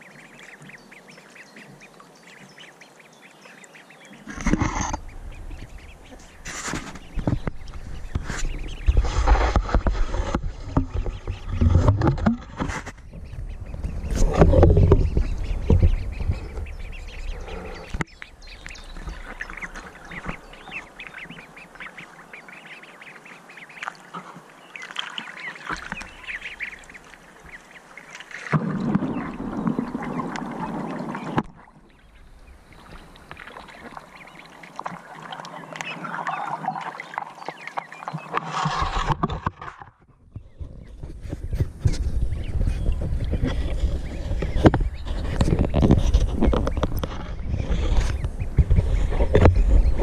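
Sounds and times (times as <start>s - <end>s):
water splashing and sloshing: 0.0s - 50.0s
ducks quacking: 12.5s - 39.8s.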